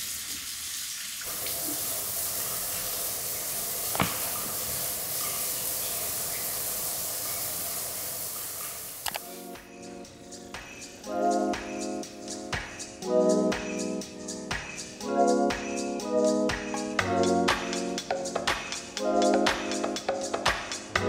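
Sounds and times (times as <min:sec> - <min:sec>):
water running from tap: 0:00.0 - 0:09.2.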